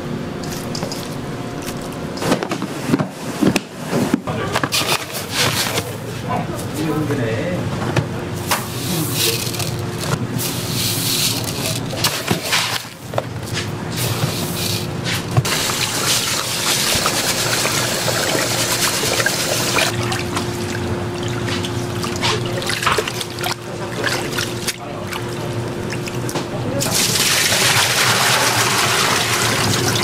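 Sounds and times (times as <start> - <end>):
steady low hum: 0.0 - 27.3
tap water running and splashing: 15.4 - 30.0.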